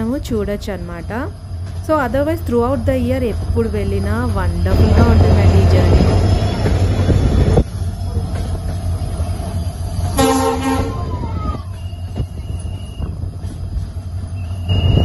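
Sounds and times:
train rumbling: 0.0s - 15.0s
train horn blast: 10.2s - 11.1s.

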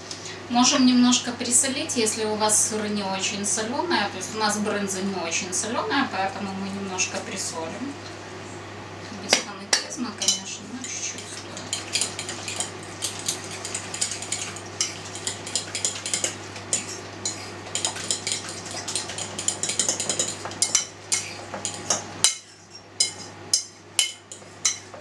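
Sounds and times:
steady low hum: 0.0s - 25.0s
utensil clinking in ceramic bowl: 10.2s - 24.9s.

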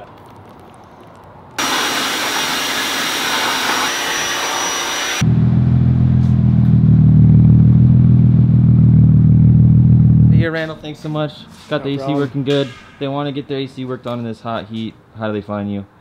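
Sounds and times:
pressure washer spraying: 1.6s - 5.2s
car engine idling: 5.2s - 10.4s.

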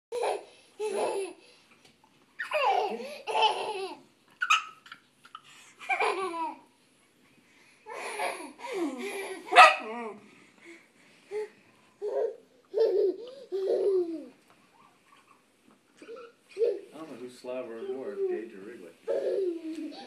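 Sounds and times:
toddler laughing: 0.1s - 1.4s, 2.4s - 6.7s, 12.0s - 14.4s, 16.0s - 16.9s, 19.1s - 20.0s.

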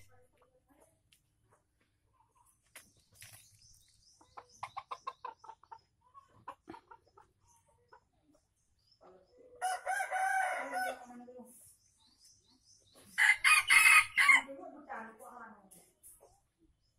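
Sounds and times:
rooster crowing: 9.6s - 11.0s, 13.2s - 14.5s.

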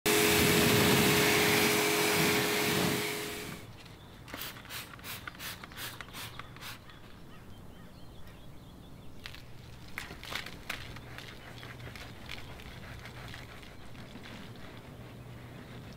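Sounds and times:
pressure washer spraying: 0.1s - 3.6s.

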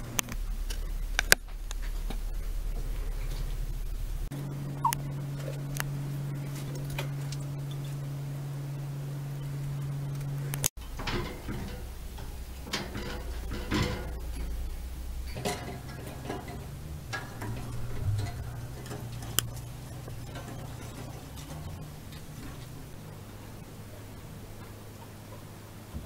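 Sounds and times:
low steady hum: 0.0s - 26.0s
wire cage clicks and rattles: 10.5s - 25.5s.

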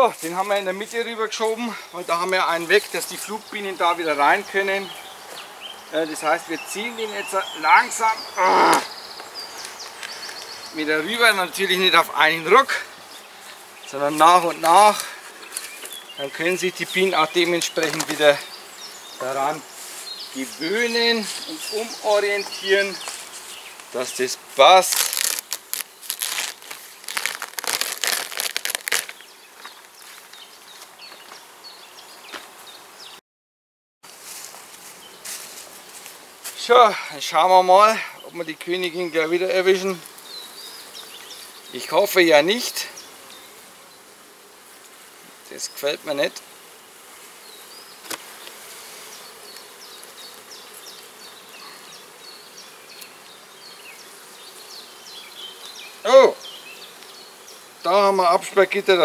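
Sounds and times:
honeybees buzzing: 0.0s - 33.2s, 34.1s - 59.0s
crackling rustling handling noises: 13.4s - 18.5s, 20.8s - 31.4s, 34.1s - 36.7s.

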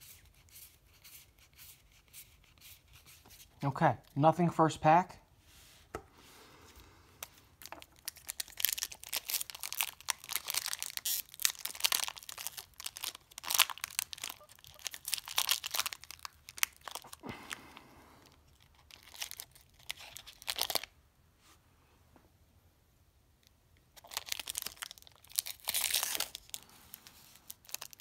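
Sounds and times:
foil wrapper crinkling and tearing: 7.6s - 17.6s, 18.2s - 20.9s, 23.9s - 28.0s.

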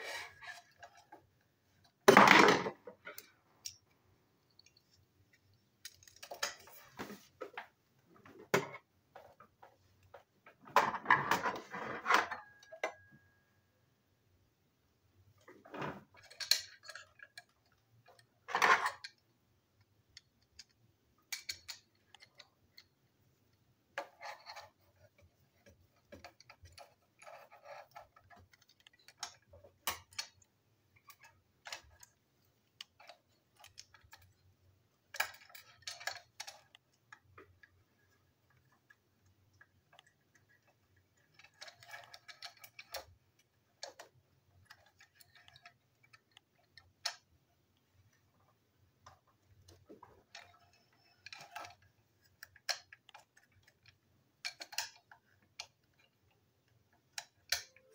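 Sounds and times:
small toy parts clicking and rattling: 3.0s - 6.8s, 16.0s - 48.4s, 49.0s - 57.9s.

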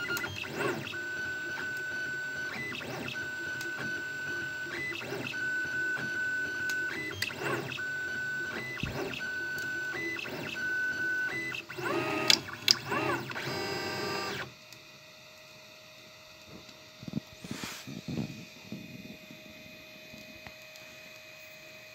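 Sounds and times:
stepper motors whining: 0.0s - 14.5s.

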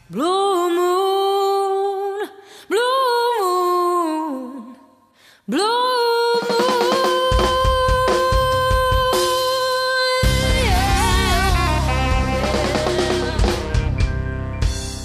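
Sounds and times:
person singing: 5.5s - 14.1s
band with strummed chords: 10.2s - 15.0s.

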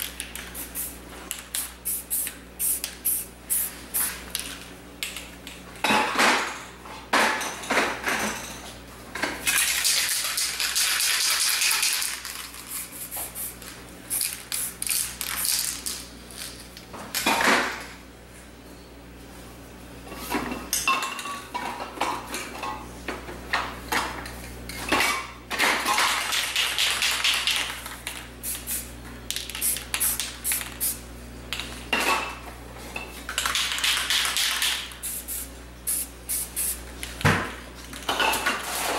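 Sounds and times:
spray paint hissing: 0.4s - 4.2s, 12.6s - 15.6s, 28.4s - 28.9s, 29.5s - 31.0s, 33.8s - 36.8s
spray can rattling when shaken: 0.4s - 4.5s, 9.5s - 16.6s, 26.3s - 31.0s, 33.4s - 36.8s.

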